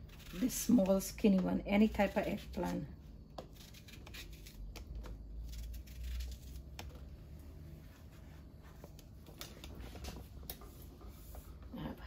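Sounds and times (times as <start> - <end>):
knife slicing eggplant: 0.0 - 7.1
low background hum: 0.0 - 12.0.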